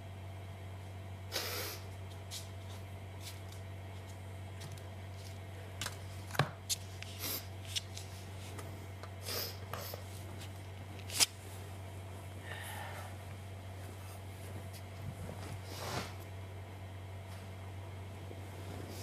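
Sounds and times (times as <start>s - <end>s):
steady low hum: 0.0s - 19.0s
bedding rustling: 13.7s - 16.4s.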